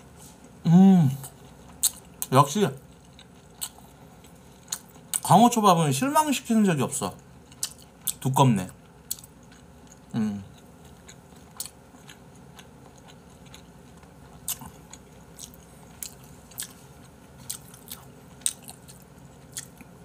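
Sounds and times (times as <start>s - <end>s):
person chewing: 0.4s - 5.4s, 7.2s - 20.0s
person humming: 0.6s - 1.2s, 10.2s - 10.5s.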